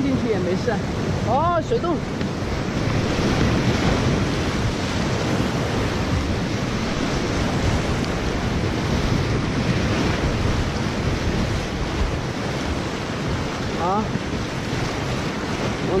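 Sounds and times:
whitewater rapids rushing: 0.0s - 16.0s
wind buffeting microphone: 0.0s - 16.0s.

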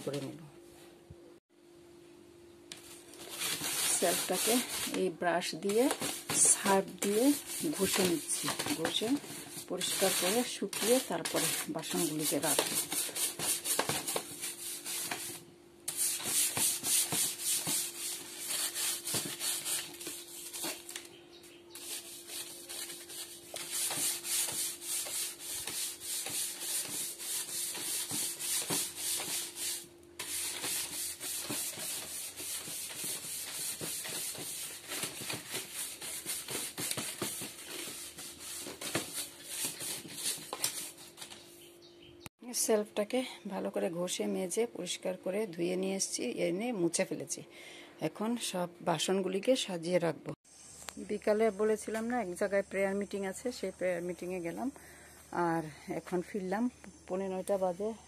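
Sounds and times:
stiff brush scrubbing plastic: 3.2s - 21.1s, 21.7s - 41.1s.

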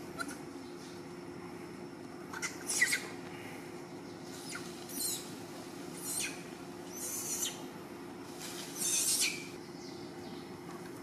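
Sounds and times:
steady low hum: 0.0s - 11.0s
baby macaque squealing: 0.2s - 0.4s, 2.3s - 3.1s, 4.3s - 5.3s, 6.0s - 7.6s, 8.8s - 9.5s.

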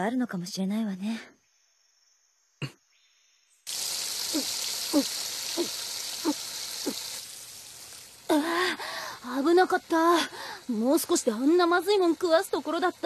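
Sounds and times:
water gushing from tap: 3.7s - 13.0s
loud panting breath: 8.4s - 9.2s, 10.3s - 10.6s.

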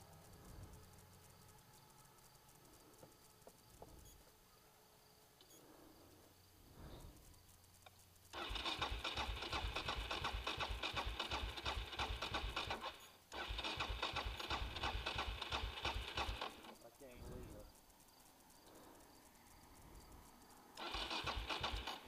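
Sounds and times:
electric starter cranking engine: 8.3s - 16.8s, 20.8s - 22.0s.

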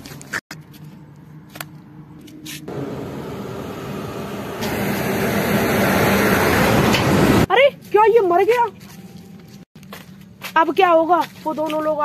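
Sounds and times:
vehicle passing on highway: 2.7s - 7.5s.

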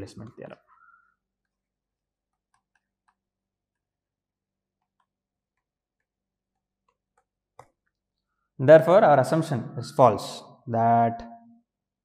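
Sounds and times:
stylus tapping on tablet: 1.4s - 4.0s, 4.7s - 7.9s.

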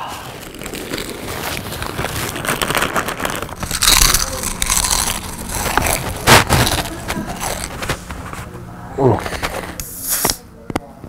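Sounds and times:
chewing potato chips: 0.0s - 8.5s.

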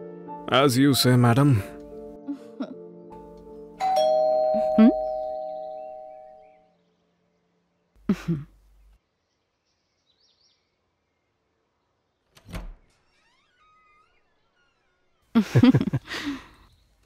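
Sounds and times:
doorbell chime: 3.8s - 6.6s
faint bird chirps: 5.0s - 8.0s, 8.6s - 15.4s.

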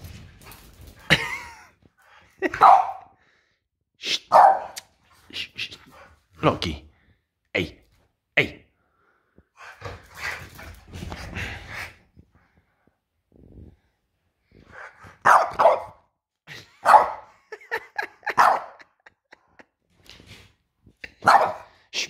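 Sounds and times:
dog barking: 2.6s - 3.1s, 4.3s - 4.8s, 15.2s - 16.0s, 16.8s - 17.3s, 18.3s - 18.8s, 21.2s - 21.7s.

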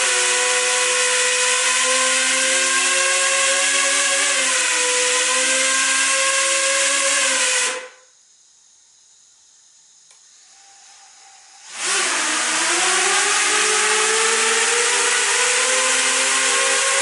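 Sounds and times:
quadcopter motors whining: 0.0s - 7.9s, 11.6s - 17.0s.

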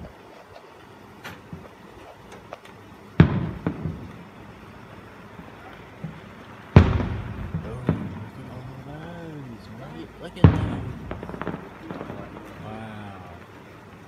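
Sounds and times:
faint firework pops: 0.0s - 4.3s, 5.6s - 8.6s, 10.4s - 12.7s
firework shell boom: 3.2s - 4.1s, 6.8s - 8.3s, 10.4s - 12.6s.

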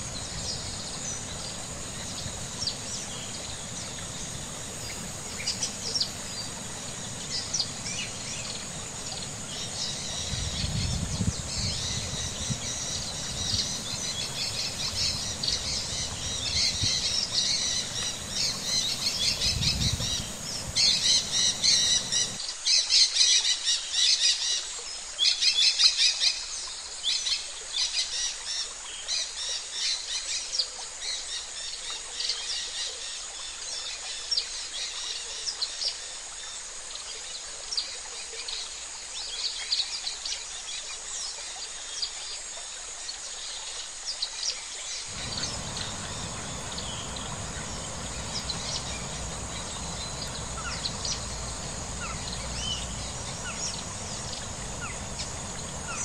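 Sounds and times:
small birds chirping: 0.0s - 22.4s, 45.1s - 56.0s
low rumble: 45.1s - 56.0s.

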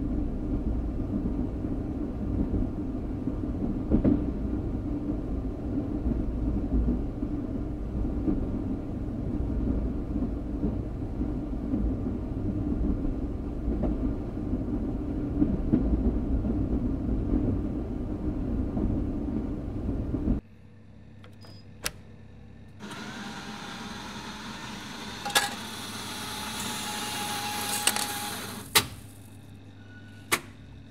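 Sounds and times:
train rumbling past: 0.0s - 20.4s.

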